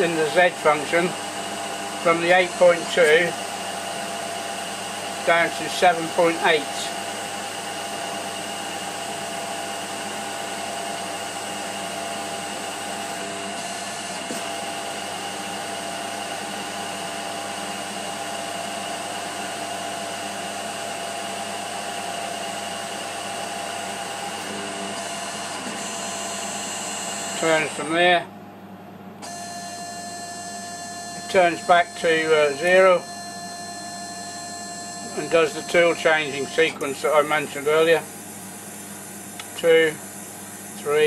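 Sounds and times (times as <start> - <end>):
lathe mechanical whine: 0.0 - 28.3, 29.0 - 41.0.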